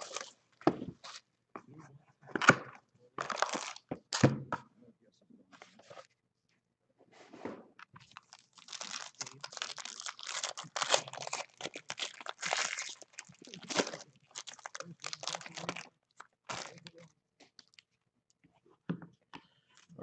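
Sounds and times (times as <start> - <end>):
foil wrapper crinkling: 3.2 - 3.8, 8.0 - 17.0.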